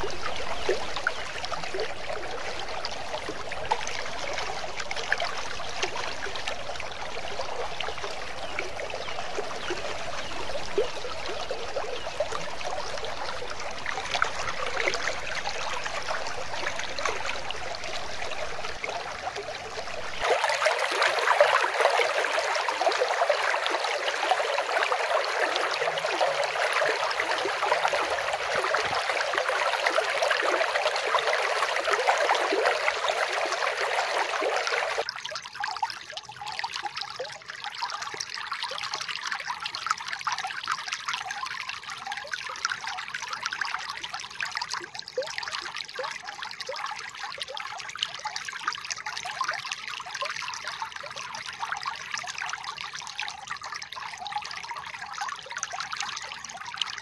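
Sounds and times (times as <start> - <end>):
stream water rushing: 0.0 - 35.1.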